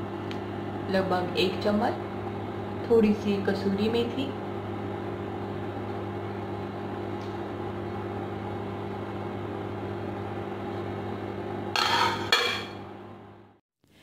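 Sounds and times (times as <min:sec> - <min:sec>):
induction cooktop humming: 0:00.0 - 0:13.6
metal lid clattering on pot: 0:11.8 - 0:12.8.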